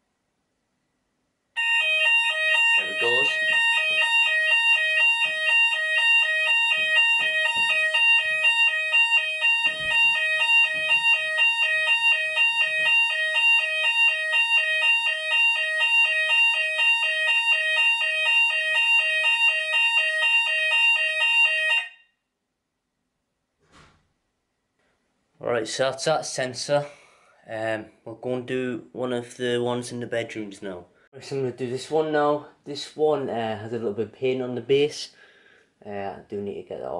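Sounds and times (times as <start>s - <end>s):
multi-tone fire alarm: 1.6s - 22.3s.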